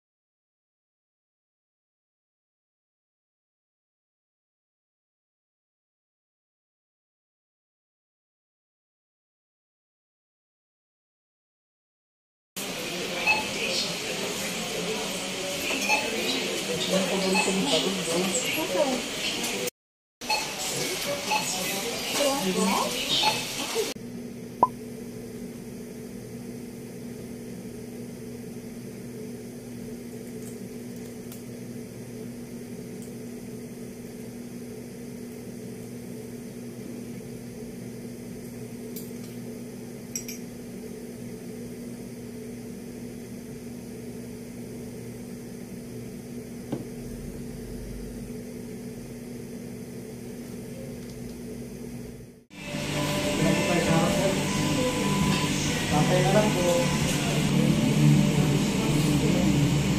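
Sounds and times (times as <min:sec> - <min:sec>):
low electrical hum: 0:24.0 - 0:59.9.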